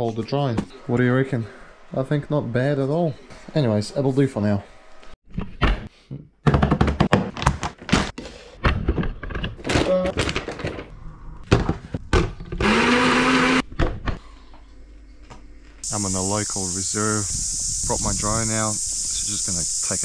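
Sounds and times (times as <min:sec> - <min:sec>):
small electric blender: 0:12.6 - 0:13.6.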